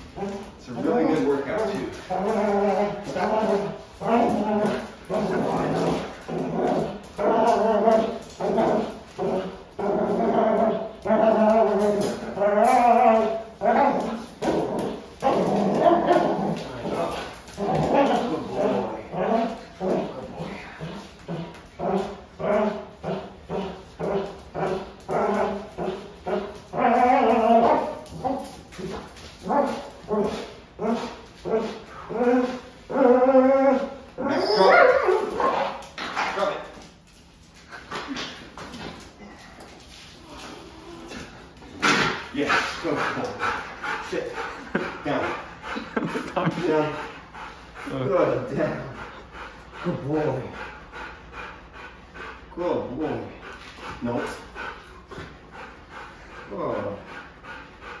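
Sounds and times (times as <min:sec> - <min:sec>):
dog barking whining and growling: 0:00.0 - 0:36.7.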